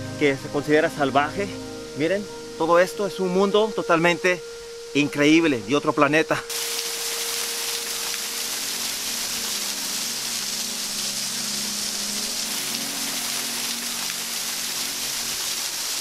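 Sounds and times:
small waterfall splashing: 6.5 - 16.0.

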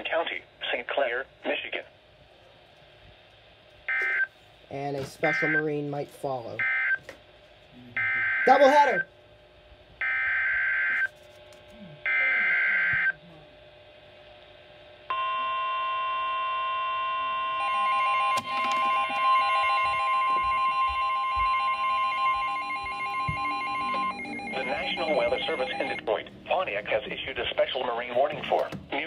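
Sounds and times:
steady attention tone: 15.1 - 29.0
pulsing beep: 17.8 - 26.0
screeching digital data bursts: 22.5 - 26.0.

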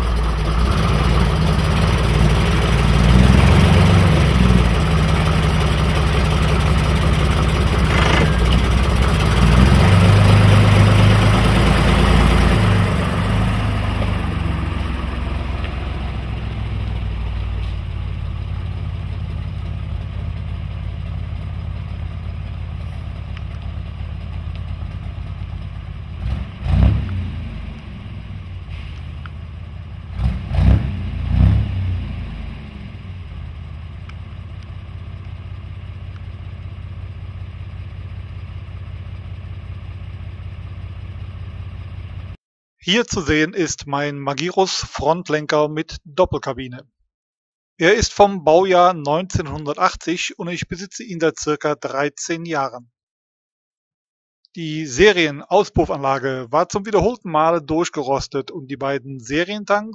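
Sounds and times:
truck diesel engine running: 0.0 - 42.4.

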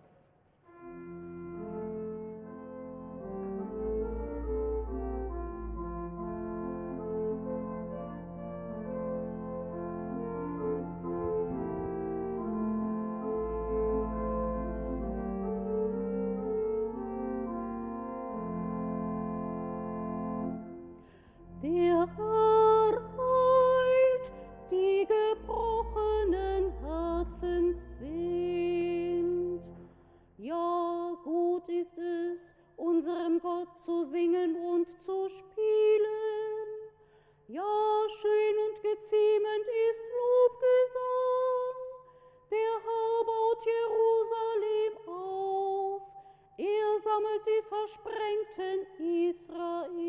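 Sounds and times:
low instrumental accompaniment: 0.8 - 29.8.

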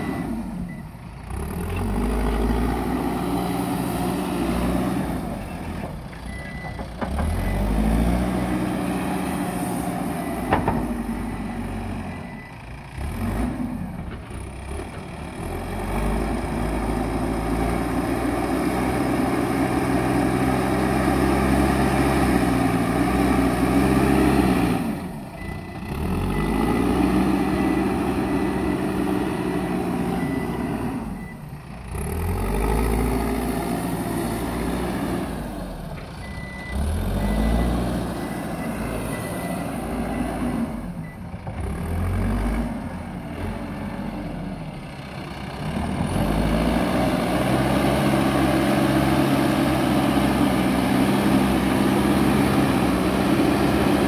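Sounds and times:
diesel engine revving under load: 0.0 - 54.0
reversing alarm beeping: 6.3 - 6.8, 10.2 - 12.6, 25.4 - 31.5, 36.2 - 41.2.

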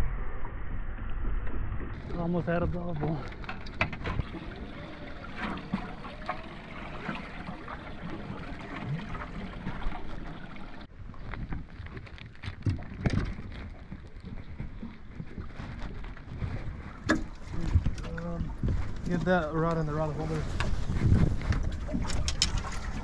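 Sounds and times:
water: 0.0 - 23.0
wind: 0.0 - 23.0.

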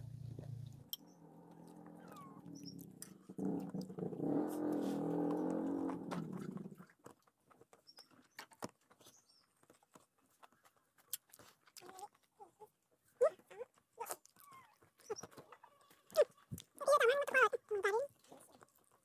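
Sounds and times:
eating and chewing sounds: 0.4 - 19.0.

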